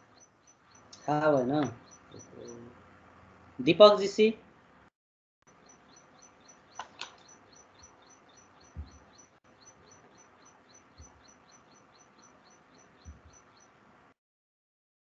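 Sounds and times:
small bird chirping: 0:00.0 - 0:02.8, 0:05.5 - 0:13.8.

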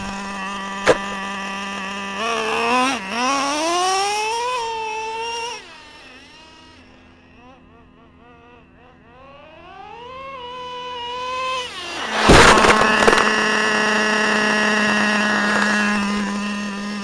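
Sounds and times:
rc truck nitro engine: 0:00.0 - 0:17.0
truck crashing into camcorder: 0:12.0 - 0:14.2.

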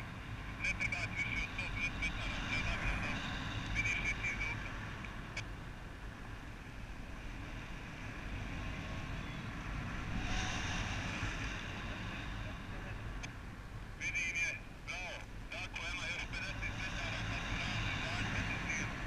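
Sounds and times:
wind rushing over microphone: 0:06.3 - 0:13.2.

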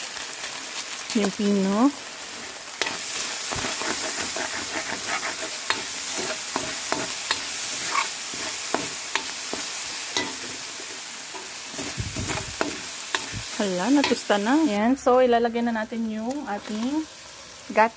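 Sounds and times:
food sizzling in a wok: 0:00.0 - 0:17.9
metal ladle scraping a pan: 0:02.4 - 0:14.3.

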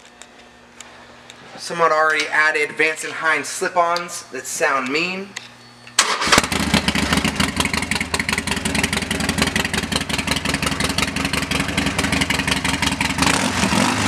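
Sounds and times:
motorcycle engine starting and idling: 0:06.0 - 0:14.0.

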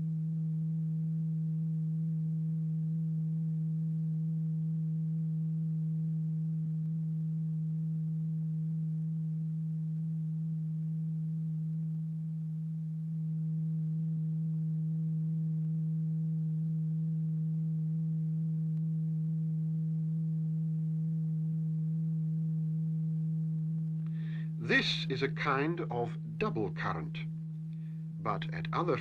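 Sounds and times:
low sine tone: 0:00.0 - 0:29.0.

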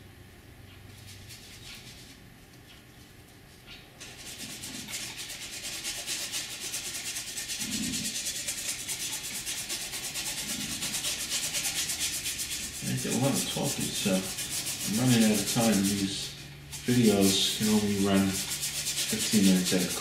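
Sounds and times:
paintbrush scrubbing canvas: 0:04.0 - 0:20.0.

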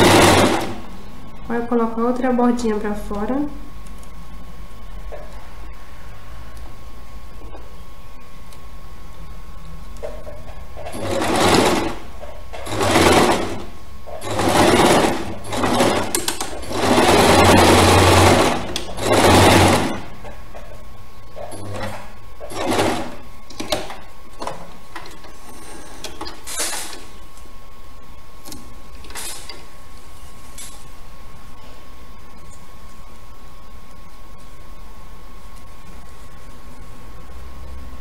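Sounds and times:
sewing machine stitching: 0:00.0 - 0:00.9, 0:10.8 - 0:20.1, 0:21.4 - 0:27.1.

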